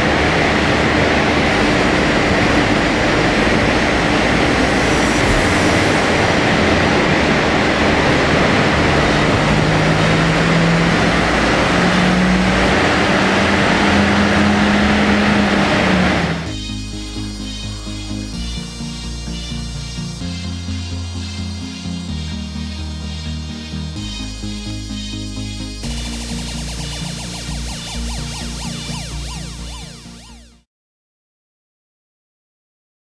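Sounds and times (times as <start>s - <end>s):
car engine revving at full throttle: 0.0s - 16.6s
rush of spinning rollers: 0.0s - 16.6s.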